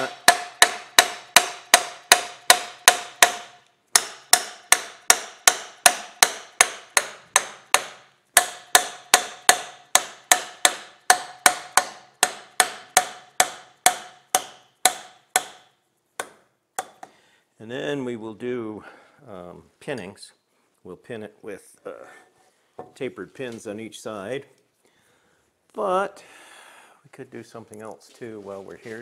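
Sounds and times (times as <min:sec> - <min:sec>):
plastic mallet tapping metal: 0:00.0 - 0:17.1.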